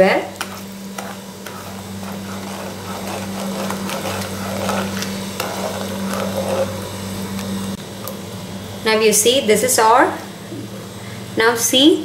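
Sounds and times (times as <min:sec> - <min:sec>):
spatula scraping pan: 0:00.4 - 0:07.7
low hum: 0:00.9 - 0:08.8.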